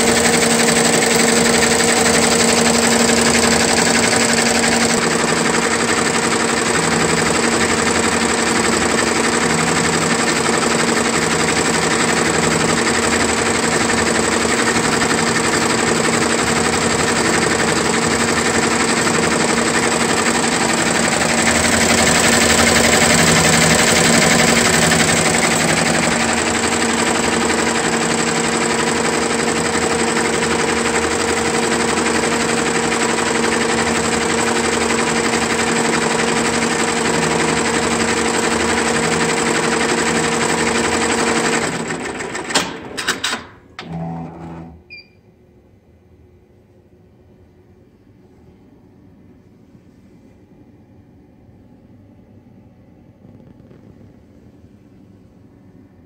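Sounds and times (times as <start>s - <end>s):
embroidery machine needle clatter: 0.0s - 44.0s
mechanical hum: 42.1s - 56.0s.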